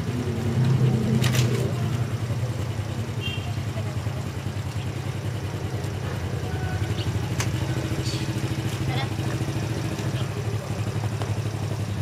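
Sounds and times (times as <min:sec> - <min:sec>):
motorbike engine idling: 0:00.0 - 0:12.0.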